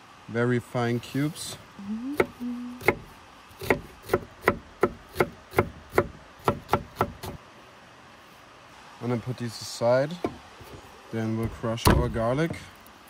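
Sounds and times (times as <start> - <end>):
knife chopping on wooden board: 2.2 - 7.4.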